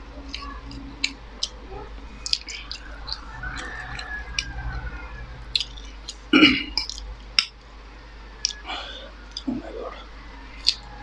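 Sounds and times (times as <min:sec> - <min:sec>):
person chewing noodles: 0:00.3 - 0:04.8, 0:05.5 - 0:07.6, 0:08.4 - 0:09.7, 0:10.6 - 0:10.9.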